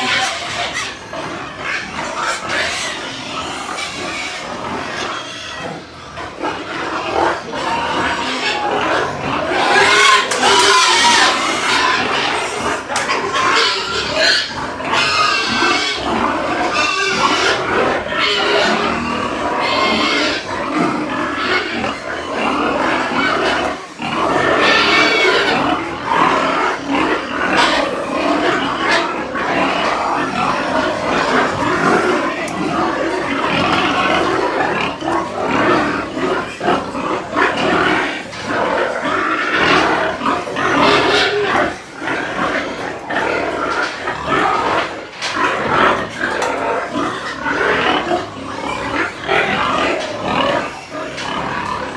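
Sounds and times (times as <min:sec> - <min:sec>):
pigs grunting and squealing: 0:00.0 - 0:51.9.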